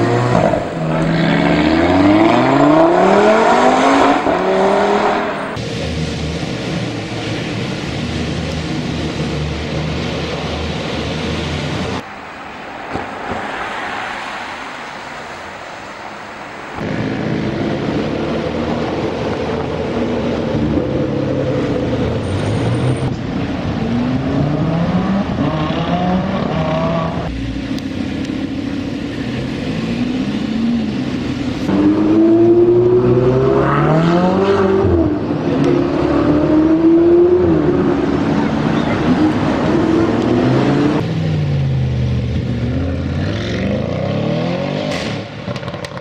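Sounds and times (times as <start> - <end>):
car engine accelerating hard: 0.0 - 7.2, 23.7 - 45.3.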